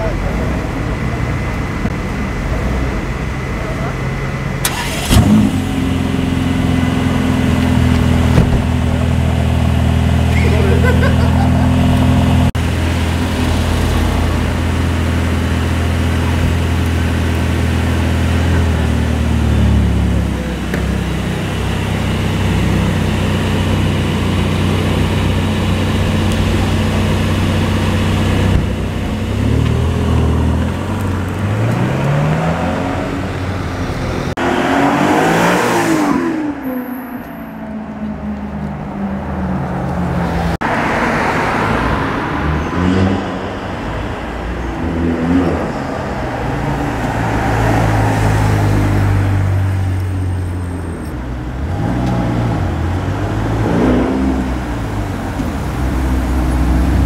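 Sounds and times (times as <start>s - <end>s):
car engine starting and idling: 0.0s - 42.6s, 43.2s - 57.0s
car engine revving away: 25.8s - 36.8s, 51.5s - 57.0s.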